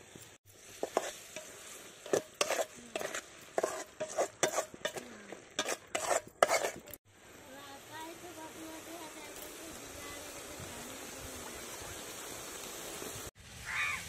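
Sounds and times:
metal spatula scraping a metal pot: 0:00.7 - 0:07.0.

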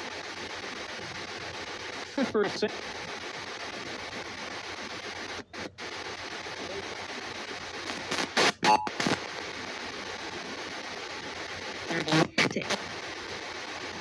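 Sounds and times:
radio static hiss: 0:00.0 - 0:14.0
snatches of radio broadcast: 0:00.0 - 0:14.0.

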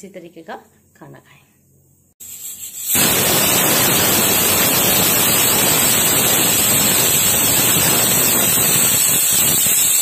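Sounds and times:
pressure cooker whistling: 0:02.8 - 0:10.0.

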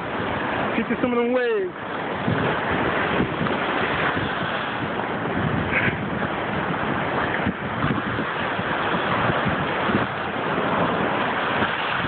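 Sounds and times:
lake surf breaking on rocks: 0:00.0 - 0:12.0
wind buffeting microphone: 0:00.0 - 0:12.0.

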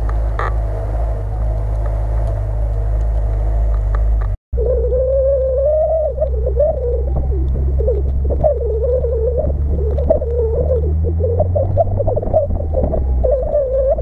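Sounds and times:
car engine droning: 0:00.0 - 0:14.0
high wavering whine: 0:00.0 - 0:14.0.

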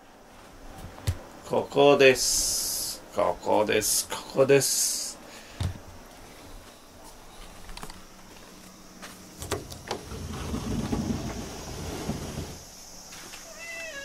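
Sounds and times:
air conditioner hum: 0:00.0 - 0:13.7
low rubbing rumble of door: 0:09.4 - 0:12.7.

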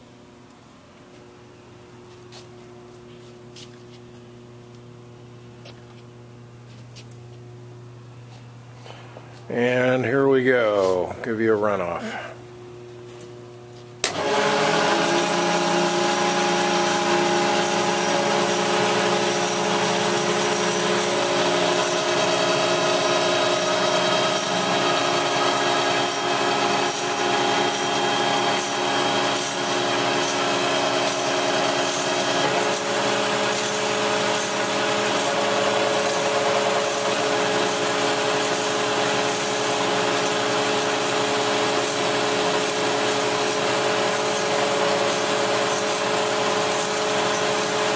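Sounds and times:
bandsaw cutting: 0:14.0 - 0:47.9.

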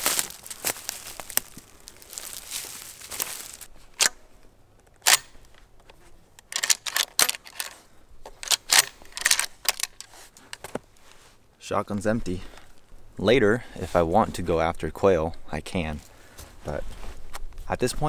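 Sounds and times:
handling rustle: 0:00.0 - 0:13.1
shotgun action clicking: 0:05.0 - 0:05.4, 0:06.4 - 0:07.8, 0:08.4 - 0:10.1.

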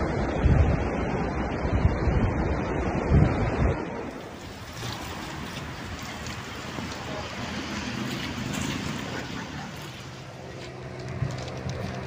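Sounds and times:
wind noise on microphone: 0:00.0 - 0:12.0
waves washing against rocks: 0:04.0 - 0:12.0.

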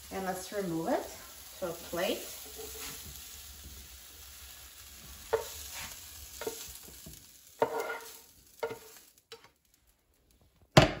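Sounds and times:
food sizzling in a pan: 0:00.0 - 0:10.4
spatula scraping a frying pan: 0:02.2 - 0:03.4, 0:05.1 - 0:09.6.

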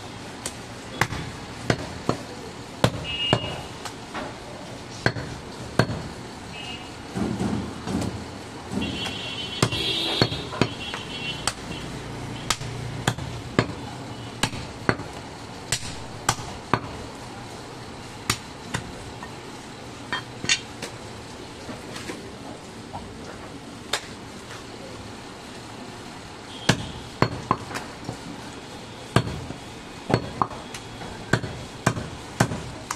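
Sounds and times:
knife chopping meat on wood block: 0:12.5 - 0:13.8.

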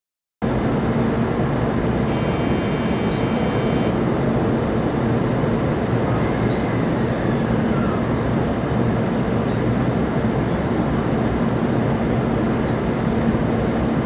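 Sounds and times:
train car interior hum: 0:00.4 - 0:14.0
high tone: 0:02.1 - 0:04.0.

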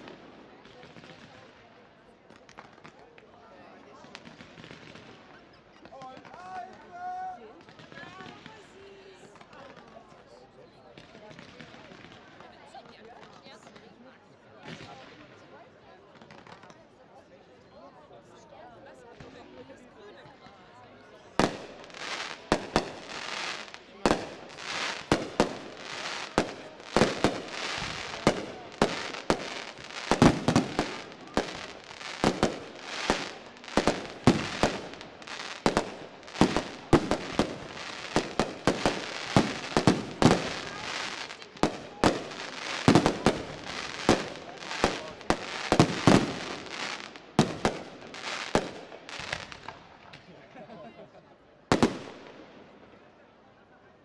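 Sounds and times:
firework crackling: 0:21.4 - 0:50.0
firework shells bursting: 0:21.5 - 0:48.8.

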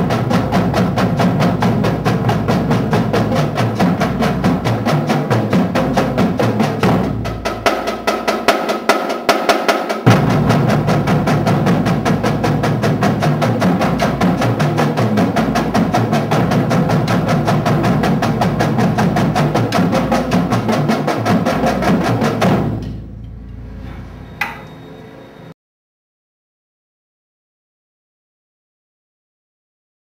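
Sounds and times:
marching drumline playing: 0:00.0 - 0:23.2
room noise: 0:00.0 - 0:25.6.

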